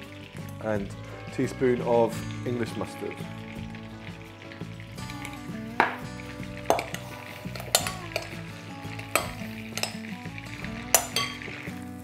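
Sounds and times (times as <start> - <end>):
butter sizzling in a pan: 0.0 - 12.0
spoon stirring wet mixture: 2.9 - 11.8
spoon clinking against glass: 6.7 - 8.4, 9.1 - 10.0, 10.9 - 11.5.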